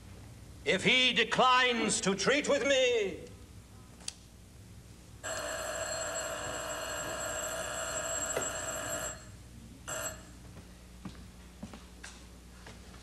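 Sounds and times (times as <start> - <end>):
telephone bell ringing: 5.2 - 10.3.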